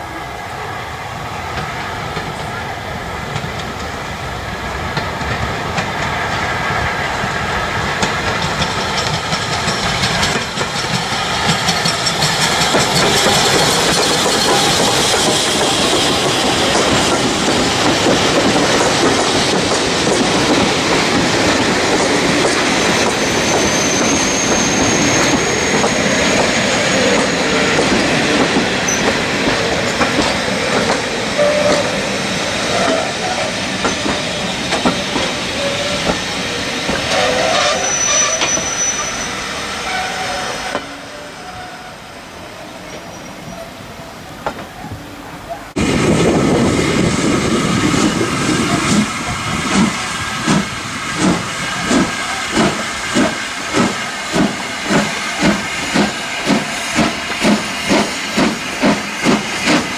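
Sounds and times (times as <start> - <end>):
steam locomotive passing: 0.0 - 59.9
train wheels clicking over rail joints: 3.3 - 39.1, 45.8 - 59.9.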